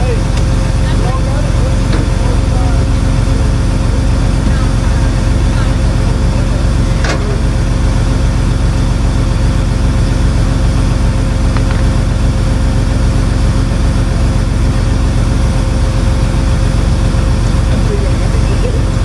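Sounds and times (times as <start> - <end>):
truck engine idling: 0.0 - 19.0.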